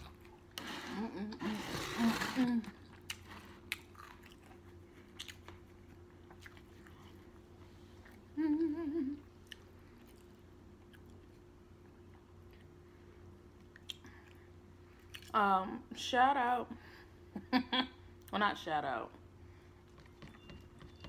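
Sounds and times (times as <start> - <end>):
person chewing: 2.8 - 8.3, 9.3 - 12.7
person humming mmm: 8.3 - 9.3.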